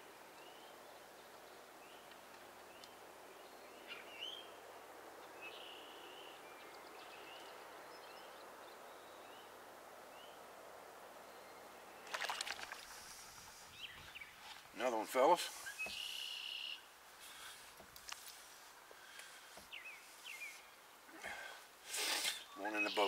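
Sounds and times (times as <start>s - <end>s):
small birds chirping: 0.4s - 10.4s, 11.2s - 23.0s.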